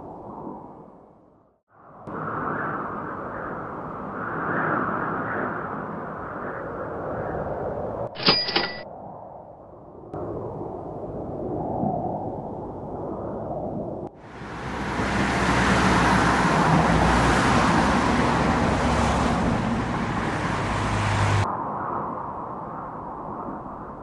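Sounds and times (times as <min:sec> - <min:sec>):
motor vehicles driving by: 0:14.3 - 0:21.4.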